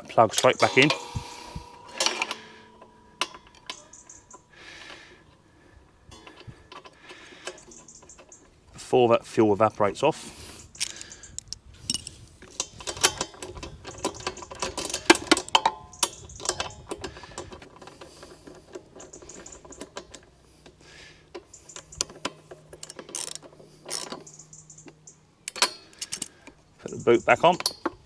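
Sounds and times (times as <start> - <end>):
metallic clicks of wrench: 0.3 - 5.3, 10.7 - 28.0.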